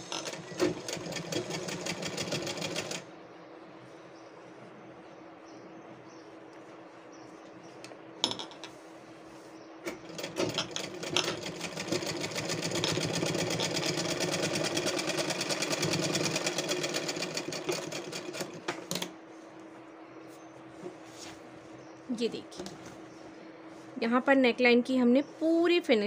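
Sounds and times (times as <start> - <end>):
sewing machine stitching: 0.0 - 3.0, 9.9 - 19.1.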